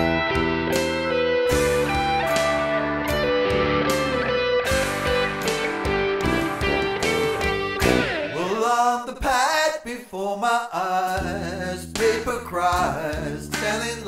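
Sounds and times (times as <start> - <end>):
electric guitar strumming chords: 0.0 - 8.6
low held bass note: 1.5 - 8.3
man singing in wavering voice: 8.3 - 14.0.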